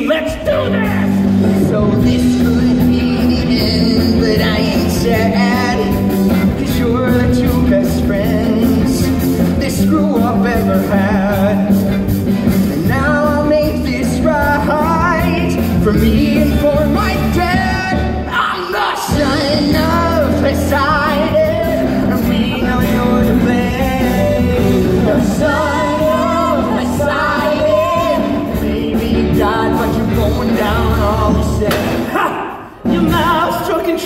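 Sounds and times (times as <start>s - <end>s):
amplified singing: 0.0s - 34.0s
band accompaniment: 0.0s - 34.0s.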